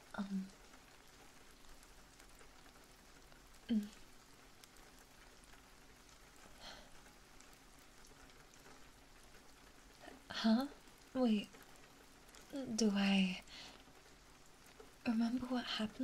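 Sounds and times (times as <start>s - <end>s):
faint rain-like patter: 0.0s - 16.0s
woman humming: 3.7s - 4.0s.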